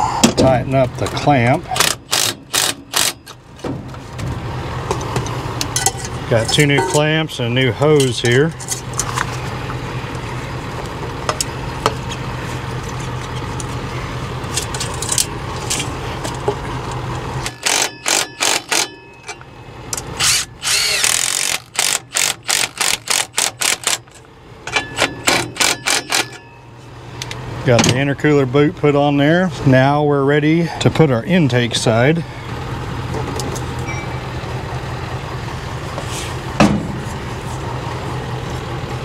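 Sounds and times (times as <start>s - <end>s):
steady low hum: 0.0s - 39.0s
cordless ratchet bursts: 1.8s - 3.2s, 17.5s - 19.0s, 20.2s - 24.1s, 25.3s - 26.4s.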